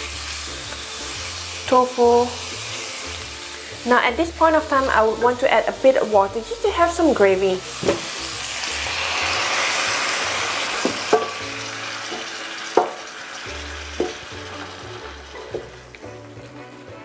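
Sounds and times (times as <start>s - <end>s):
water sizzling in hot pan: 0.0s - 17.0s
wooden spatula knocking pan: 7.8s - 8.1s, 10.8s - 11.5s, 12.1s - 13.1s, 14.0s - 14.3s, 15.4s - 15.8s.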